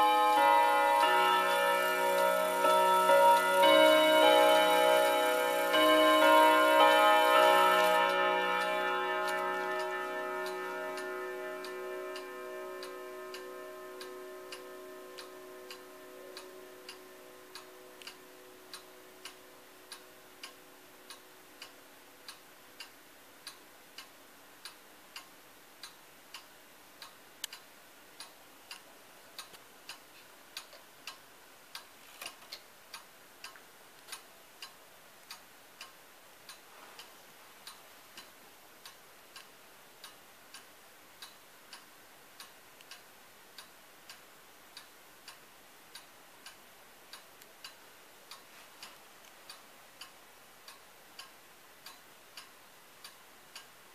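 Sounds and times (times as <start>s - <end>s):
clock chime ringing: 0.0s - 21.6s
pendulum clock ticking: 0.0s - 53.9s.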